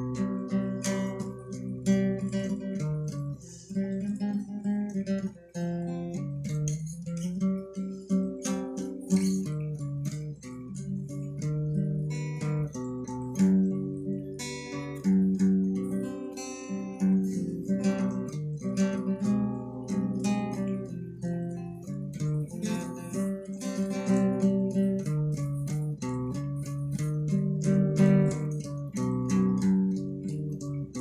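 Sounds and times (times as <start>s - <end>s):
acoustic guitar playing: 0.0s - 31.0s.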